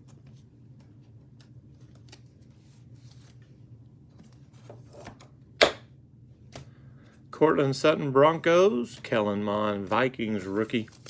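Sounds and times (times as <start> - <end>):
trading cards shuffling: 0.0 - 5.2, 9.8 - 11.0
low steady hum: 0.0 - 11.0.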